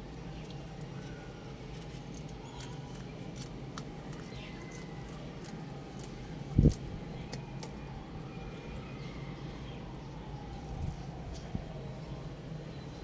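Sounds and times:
chickens pecking food: 0:00.0 - 0:07.9
low background hum: 0:00.0 - 0:13.0.

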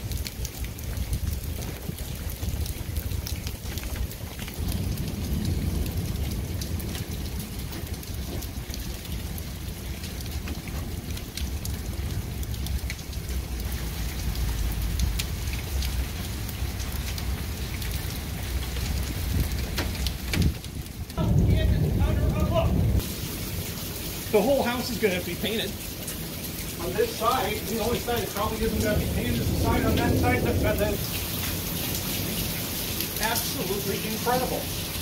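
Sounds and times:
wind rumble on microphone: 0:00.0 - 0:23.1, 0:28.1 - 0:31.2
rain falling: 0:00.0 - 0:35.0
raindrops ticking: 0:00.0 - 0:35.0.

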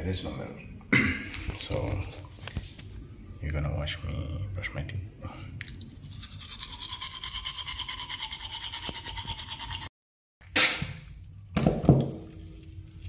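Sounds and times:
toothbrush scrubbing teeth: 0:06.1 - 0:09.9.

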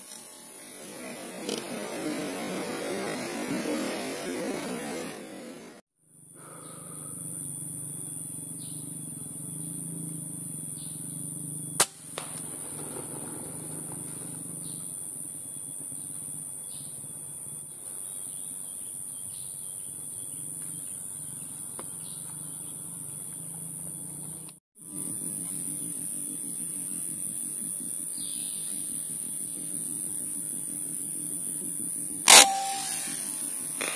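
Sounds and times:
insects droning: 0:00.0 - 0:05.2, 0:06.0 - 0:33.9
air rifle shot crack: 0:11.8 - 0:12.8, 0:32.3 - 0:33.9.

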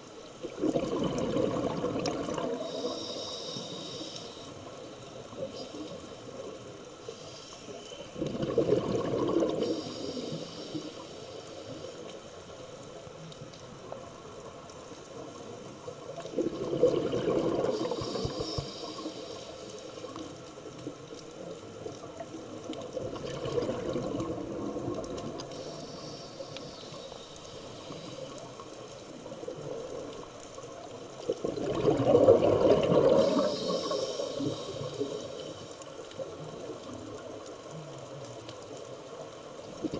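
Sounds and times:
exhaled bubbles underwater: 0:00.0 - 0:03.9, 0:08.0 - 0:11.0, 0:15.5 - 0:25.9, 0:27.8 - 0:39.9
faint steady hiss: 0:00.0 - 0:39.9.

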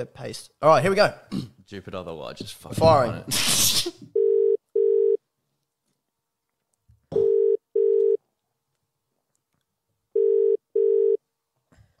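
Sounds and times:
telephone ringback tone: 0:04.2 - 0:05.2, 0:07.2 - 0:08.2, 0:10.2 - 0:11.2.

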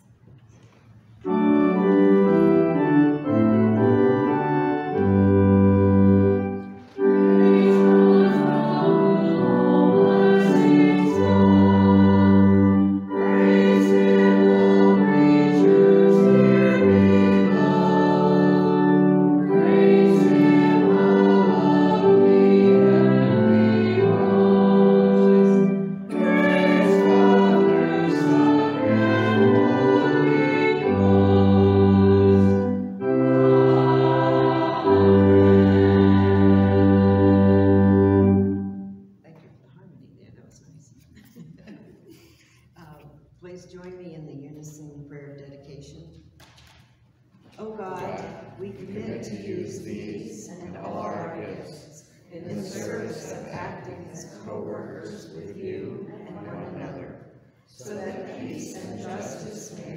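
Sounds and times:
congregation singing a hymn: 0:01.2 - 0:38.9, 0:47.6 - 0:59.9
organ playing held chords: 0:01.2 - 0:39.1, 0:50.7 - 0:51.8, 0:52.4 - 0:59.9.

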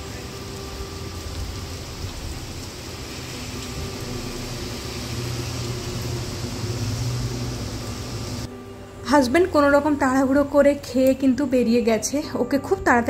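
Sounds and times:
steady rain falling: 0:00.0 - 0:08.5
low mechanical hum: 0:01.2 - 0:08.6.

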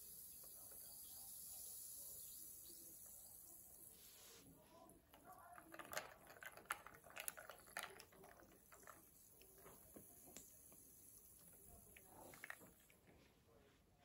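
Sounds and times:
ice clicking in glass: 0:05.2 - 0:09.8.

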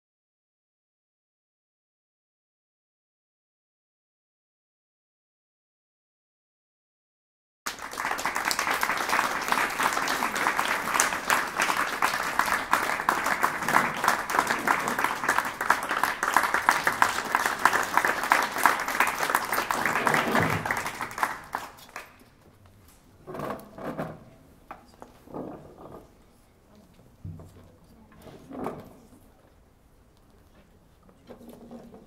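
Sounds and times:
audience applauding: 0:07.7 - 0:22.2.

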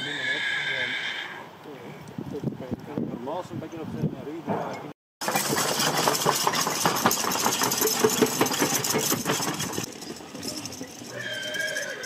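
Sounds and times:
potato digger clattering and rattling: 0:05.2 - 0:11.1.

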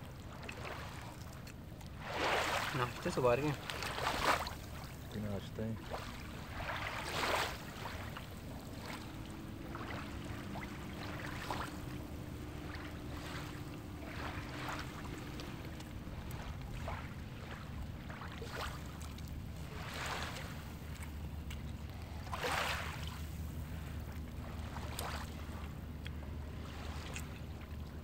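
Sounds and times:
faint hum: 0:00.0 - 0:28.0
sea water lapping and splashing: 0:00.0 - 0:28.0
low rumble: 0:06.1 - 0:18.2.

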